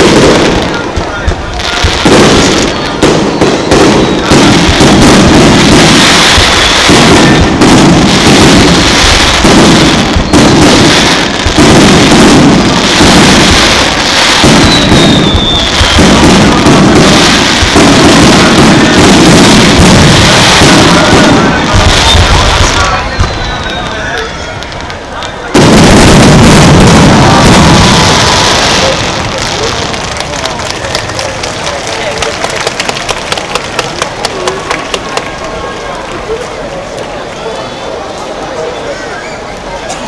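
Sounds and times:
falling firework whistle: 0.0 - 31.4
fireworks booming and crackling: 0.0 - 38.8.

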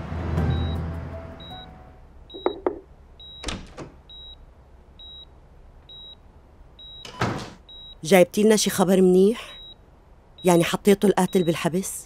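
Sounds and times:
sharp knocks and clatters: 2.4 - 2.9.

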